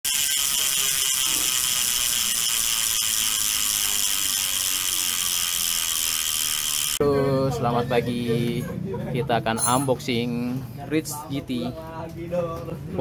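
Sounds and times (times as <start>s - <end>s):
mechanical ratcheting buzz: 0.1s - 7.0s.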